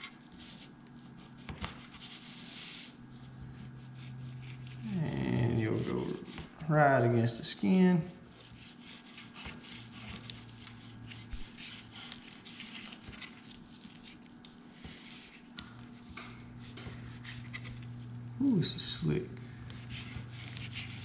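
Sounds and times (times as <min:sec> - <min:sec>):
steady low hum: 0:00.0 - 0:21.0
knife scraping fish skin: 0:03.6 - 0:05.1, 0:08.3 - 0:18.0, 0:19.7 - 0:21.0.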